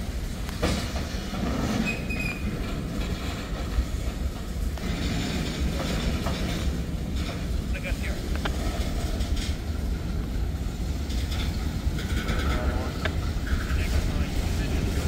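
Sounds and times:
train cars rumbling over rails: 0:00.0 - 0:15.0
wheel squeal: 0:01.4 - 0:02.8.

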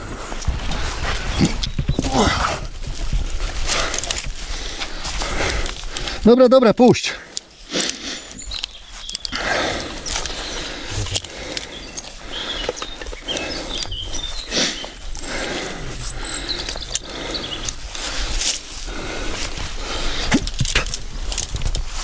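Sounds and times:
rope and clothing rustling: 0:00.0 - 0:22.0
bird chirps: 0:07.9 - 0:17.8.

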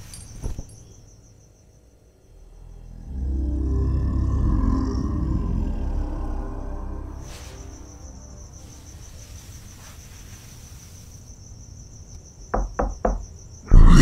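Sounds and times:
crickets chirping: 0:00.0 - 0:14.0
fist knocking on door: 0:12.6 - 0:13.3.

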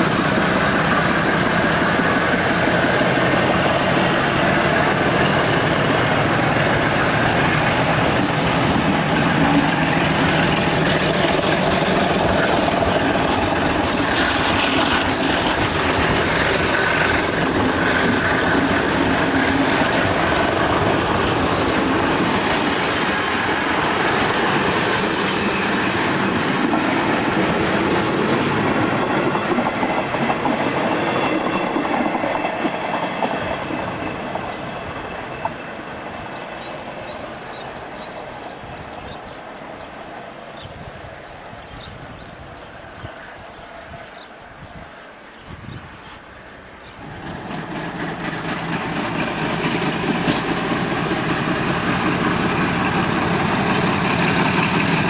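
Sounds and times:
train wheels clattering over rails: 0:00.0 - 0:40.1, 0:46.9 - 0:55.0.

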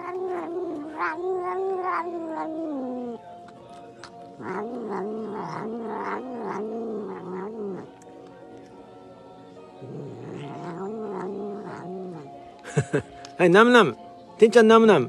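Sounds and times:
cat yowling: 0:00.0 - 0:03.2, 0:04.0 - 0:08.0, 0:09.8 - 0:12.4.

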